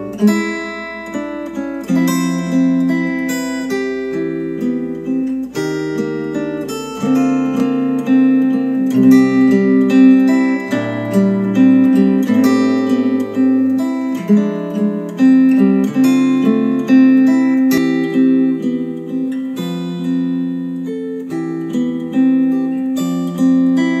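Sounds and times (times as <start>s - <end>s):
acoustic guitar plucking: 0.0s - 24.0s.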